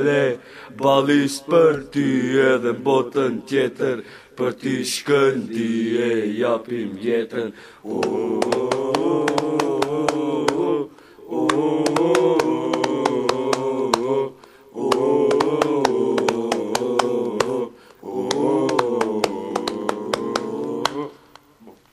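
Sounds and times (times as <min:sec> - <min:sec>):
group of voices chanting: 0:04.6 - 0:21.5
sharp regular beat: 0:08.0 - 0:10.6, 0:11.4 - 0:14.2, 0:14.8 - 0:21.0.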